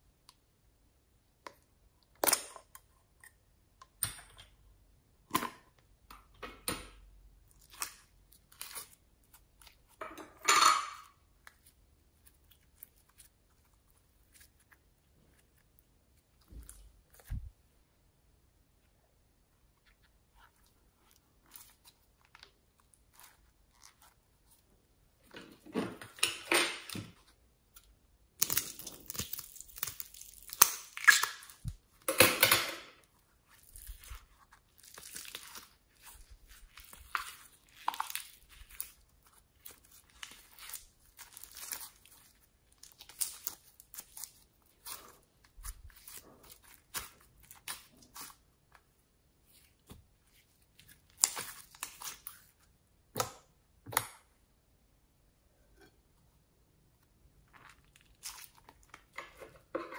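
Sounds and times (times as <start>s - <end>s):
slime squishing in glass bowl: 33.2s - 48.4s.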